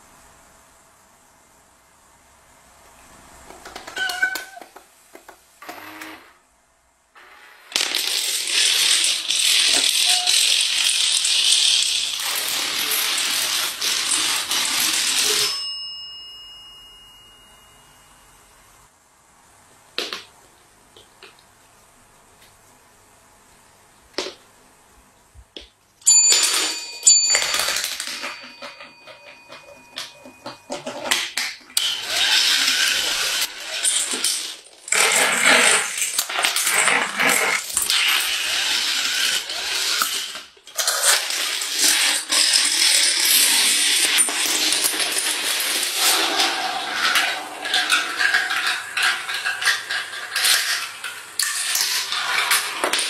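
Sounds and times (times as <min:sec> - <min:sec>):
dominoes clattering: 0:07.3 - 0:15.7, 0:26.1 - 0:53.0
desk service bell ringing: 0:15.1 - 0:18.6, 0:26.0 - 0:30.7.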